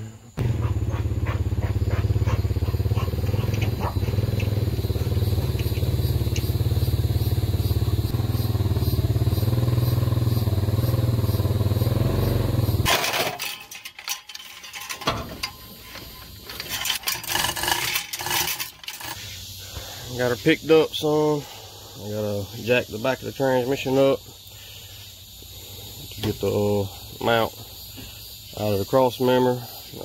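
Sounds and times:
vehicle engine running: 0:00.4 - 0:12.9
metal clicks clanks and scrapes: 0:12.9 - 0:19.4.

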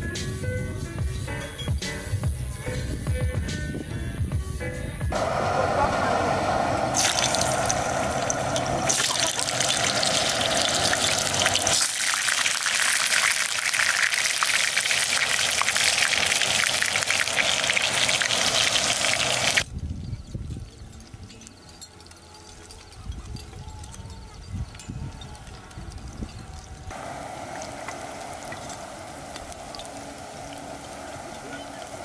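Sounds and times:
food sizzling in a pan: 0:06.4 - 0:19.7, 0:26.9 - 0:32.0.

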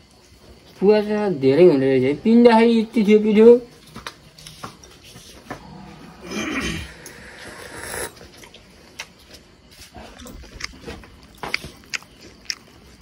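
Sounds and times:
chewing and biting food: 0:08.1 - 0:13.0.

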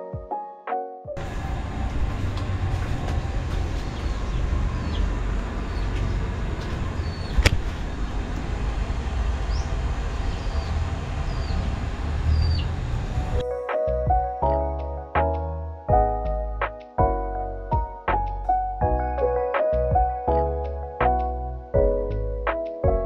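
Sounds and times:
low outdoor rumble: 0:01.2 - 0:13.4
sharp click: 0:06.0 - 0:07.7.

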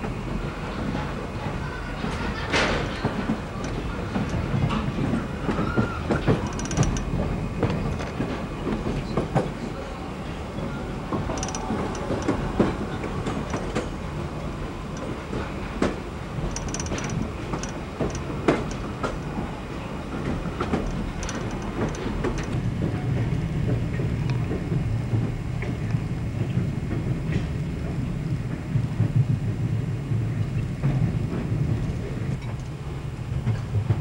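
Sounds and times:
train rumble: 0:00.0 - 0:34.0
train wheels clacking on rails: 0:00.0 - 0:34.0
train wheels squeaking: 0:00.8 - 0:22.7.

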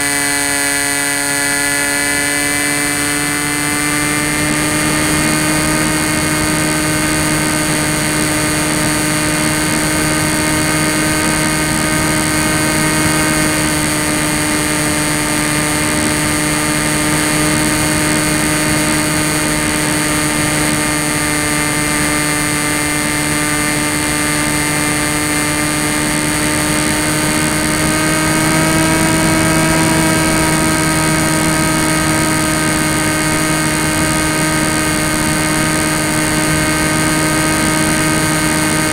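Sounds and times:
electric motor and propeller whine: 0:00.0 - 0:38.9
rushing air: 0:23.1 - 0:38.9.

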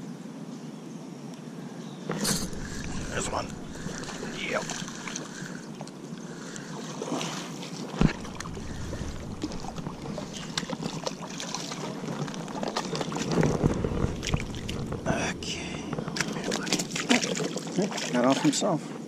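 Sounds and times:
wind noise on microphone: 0:02.1 - 0:05.7, 0:08.0 - 0:17.1
fish splashing in water: 0:02.1 - 0:18.5.

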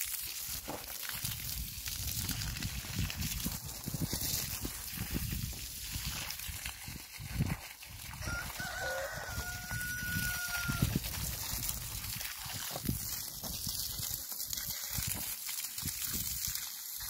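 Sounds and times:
rooster crowing: 0:08.2 - 0:11.0.

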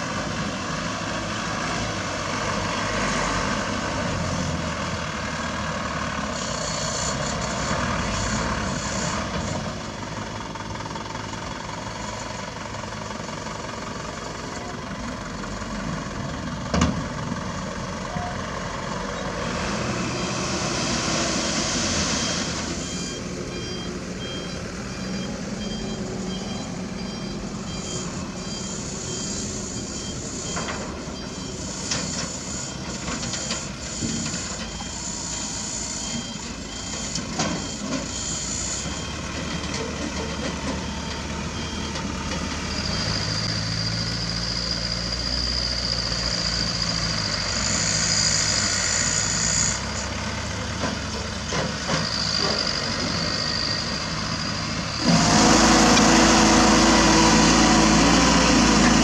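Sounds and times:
diesel truck engine running: 0:00.0 - 0:59.0
reversing beeper: 0:18.0 - 0:50.0, 0:51.9 - 0:59.0.

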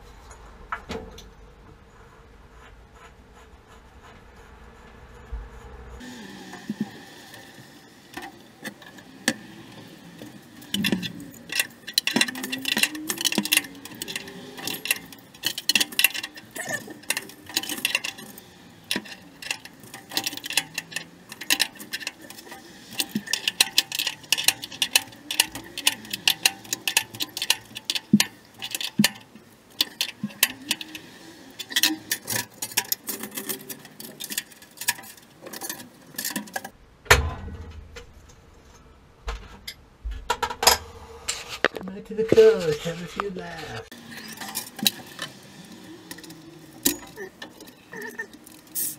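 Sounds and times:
metallic clicking and tapping: 0:06.6 - 0:38.1.

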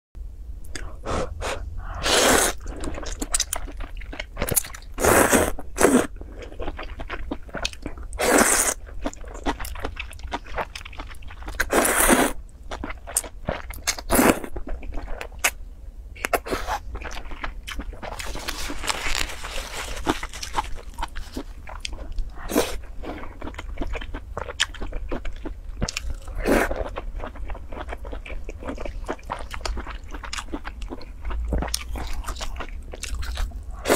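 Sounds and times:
chewing and wet mouth sounds: 0:02.5 - 0:05.0, 0:06.2 - 0:11.8, 0:16.2 - 0:33.9
noodles being slurped: 0:18.0 - 0:21.5.

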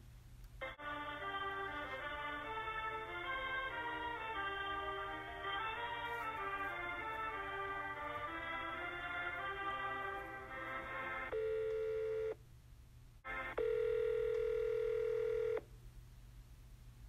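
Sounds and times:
sped-up hold music over phone: 0:00.6 - 0:12.2, 0:13.2 - 0:13.6
buzzing phone tone: 0:11.3 - 0:12.4, 0:13.6 - 0:15.6.

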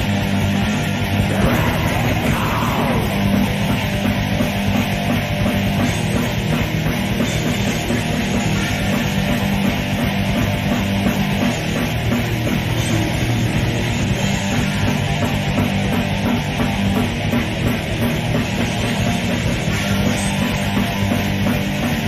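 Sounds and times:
death metal music: 0:00.0 - 0:22.0
guitar pitch slide: 0:01.0 - 0:04.7.

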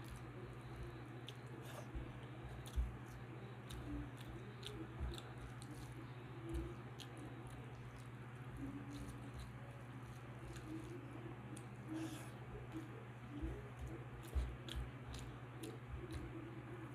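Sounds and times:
steady low hum: 0:00.0 - 0:16.9
chewing and wet mouth clicks: 0:02.5 - 0:08.2, 0:14.2 - 0:16.4.

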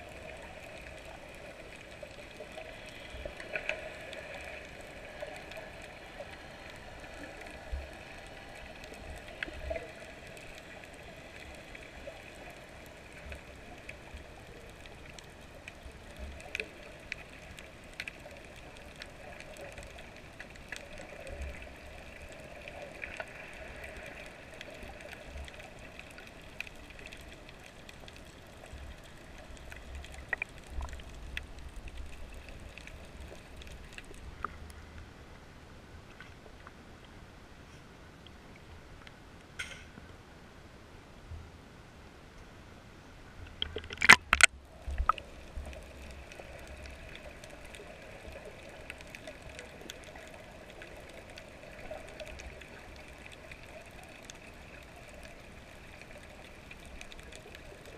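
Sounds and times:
muffled underwater hiss: 0:00.0 - 0:40.1, 0:43.3 - 0:57.9
faint hum: 0:00.0 - 0:57.9
sharp clicks: 0:43.5 - 0:45.2.

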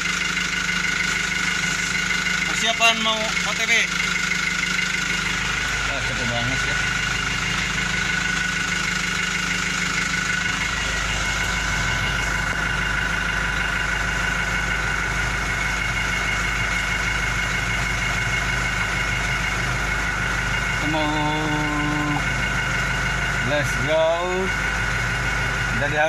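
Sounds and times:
high whine: 0:00.0 - 0:26.0
truck engine idling: 0:00.0 - 0:26.0.

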